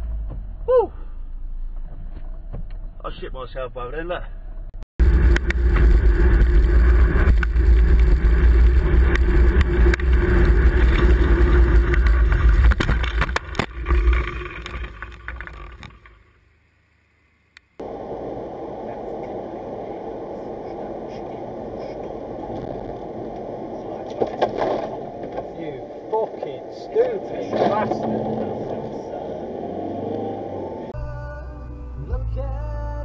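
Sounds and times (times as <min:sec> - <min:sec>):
car road and engine noise: 0:00.0 - 0:33.0
wind buffeting camera: 0:05.0 - 0:16.0, 0:17.8 - 0:31.0
bike crash knocks and scrapes: 0:05.3 - 0:16.2, 0:24.2 - 0:25.5, 0:27.4 - 0:28.7.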